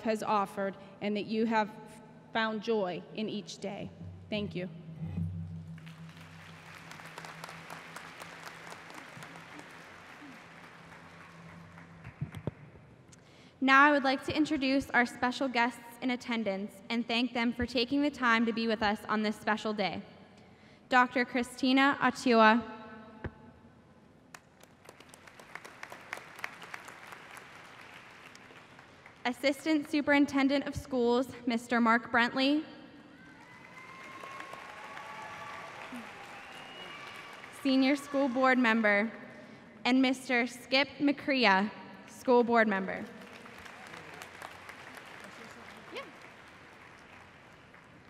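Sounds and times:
audience applauding: 5.8s - 12.5s, 24.3s - 29.2s, 33.4s - 38.1s, 43.1s - 48.0s.

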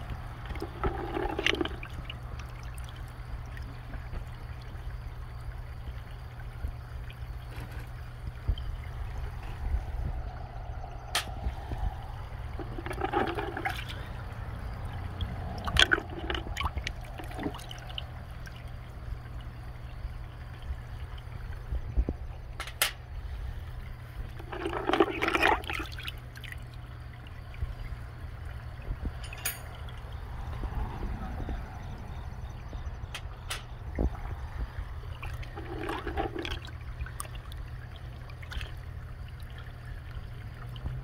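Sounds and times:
hand sloshing liquid in bucket: 0.0s - 3.0s, 12.5s - 18.6s, 24.3s - 27.8s, 35.1s - 39.7s
water splashing and dripping: 0.0s - 23.1s, 23.8s - 41.0s.

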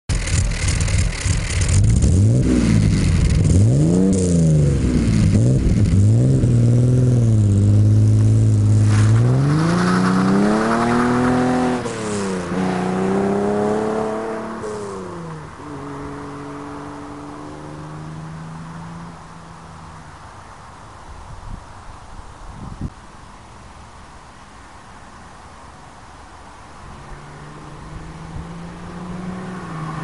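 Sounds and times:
car engine accelerating through gears: 0.2s - 19.3s, 27.0s - 30.0s.

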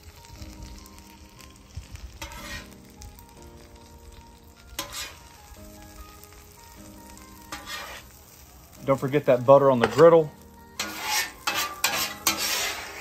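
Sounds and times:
butter sizzling on griddle: 0.0s - 13.0s
soft background music: 0.0s - 13.0s
metal spatula scraping griddle: 2.2s - 3.0s, 4.7s - 5.5s, 7.4s - 8.2s, 9.7s - 13.0s.

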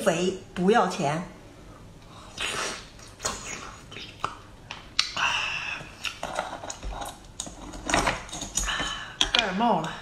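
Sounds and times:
slurp: 2.3s - 4.3s
wet mouth clicks and smacks: 2.4s - 5.2s.

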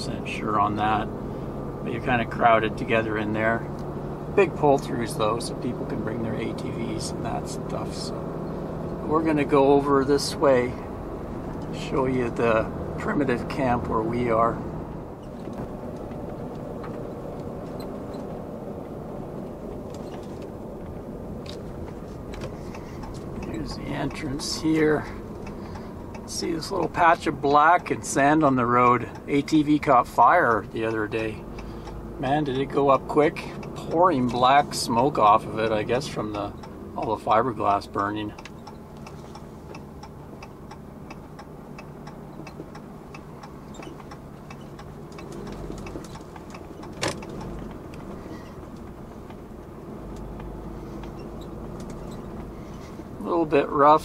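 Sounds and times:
truck cab road and engine noise: 0.0s - 54.0s
turn signal clicking: 3.7s - 4.9s, 11.0s - 11.8s, 14.9s - 53.6s.

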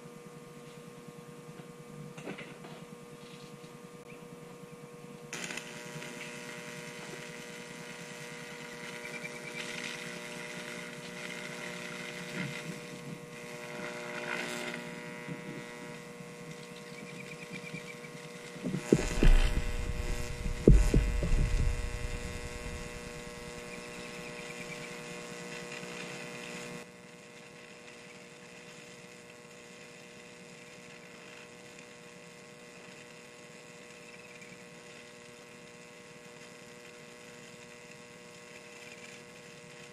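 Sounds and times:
electric arc buzzing: 5.3s - 39.9s
loud ragged arc burst: 18.7s - 24.6s.

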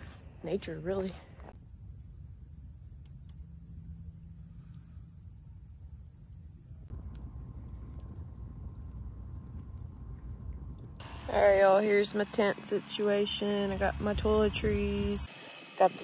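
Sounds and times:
insects trilling: 0.0s - 12.2s.

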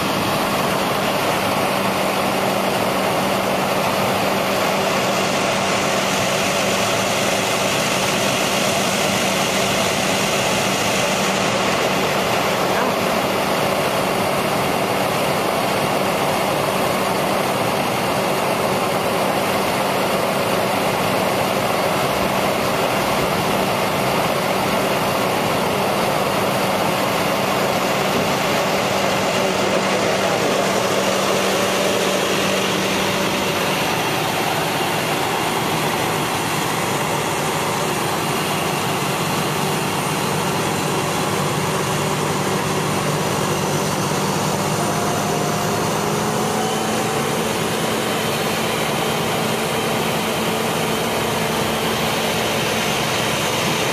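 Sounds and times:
vehicle engine idling: 0.0s - 53.9s
rushing noise: 18.2s - 53.9s.

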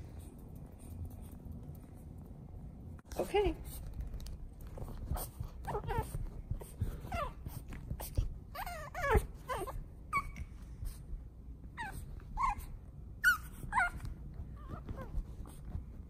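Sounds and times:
puppy whining: 5.0s - 11.0s, 11.7s - 15.7s.

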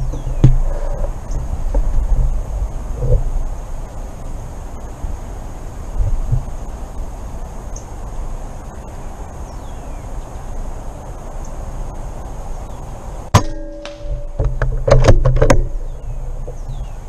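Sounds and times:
clicks and knocks: 13.4s - 15.8s.

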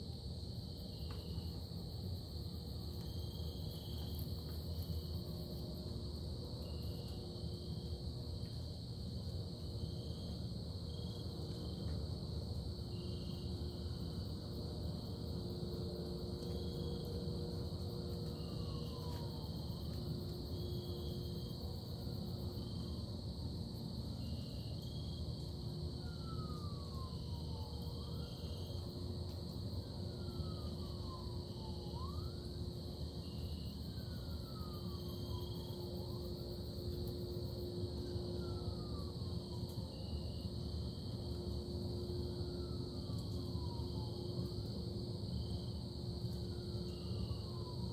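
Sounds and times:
crickets trilling: 0.0s - 47.9s
low constant hum: 0.0s - 47.9s.

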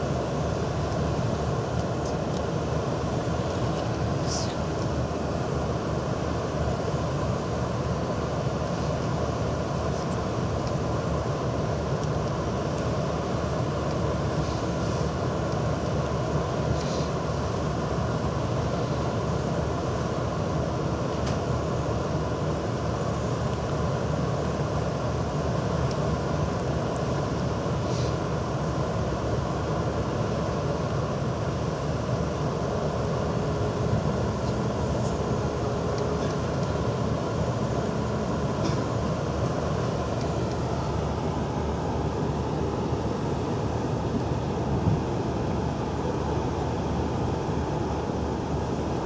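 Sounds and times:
boat engine low rumble: 0.0s - 49.0s.

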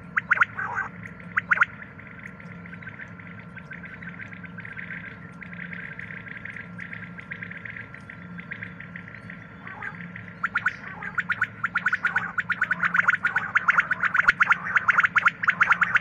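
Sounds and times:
quail calling: 9.6s - 16.0s.

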